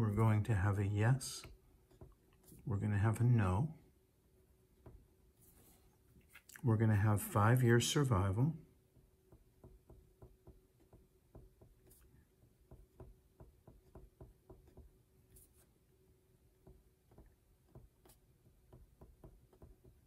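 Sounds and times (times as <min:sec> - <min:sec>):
faint steady hum: 0:00.0 - 0:20.0
marker pen writing on paper: 0:09.3 - 0:15.8, 0:16.6 - 0:20.0.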